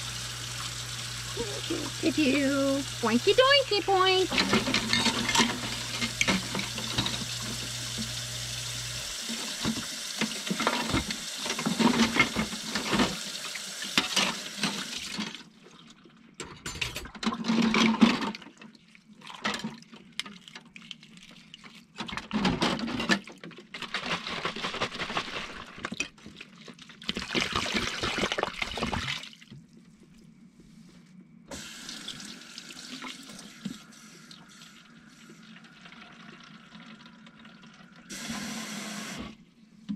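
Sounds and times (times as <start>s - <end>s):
tap water running into sink: 0.0s - 15.4s, 31.5s - 39.3s
dishes being rinsed: 0.2s - 8.2s, 9.1s - 15.4s.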